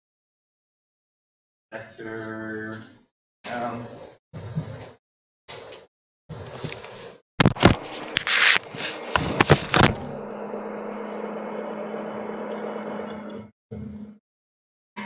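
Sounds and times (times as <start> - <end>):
projector fan humming: 7.7 - 13.2.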